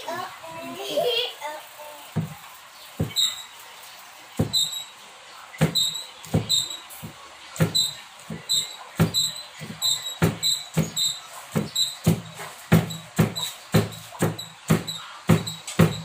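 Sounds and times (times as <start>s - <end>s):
knife chopping on wooden board: 2.2s - 2.4s, 3.0s - 3.3s, 5.6s - 16.0s.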